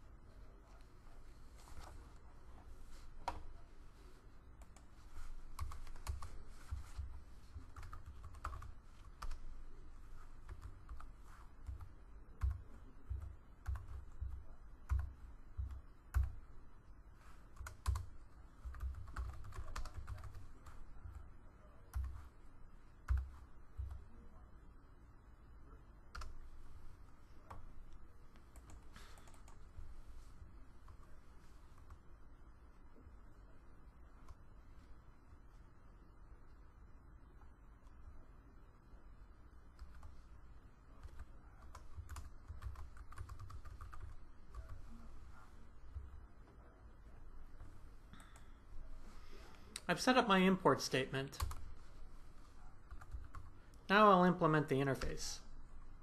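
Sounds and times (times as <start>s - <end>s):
typing on computer keyboard: 5.5s - 6.9s, 7.7s - 9.4s, 10.4s - 16.4s, 17.5s - 21.2s, 21.9s - 22.3s, 23.1s - 24.0s, 41.0s - 44.9s, 52.9s - 53.5s.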